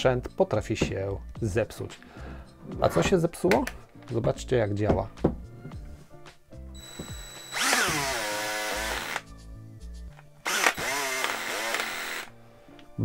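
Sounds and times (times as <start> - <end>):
cordless drill motor whine: 6.8 - 9.2, 10.4 - 12.3.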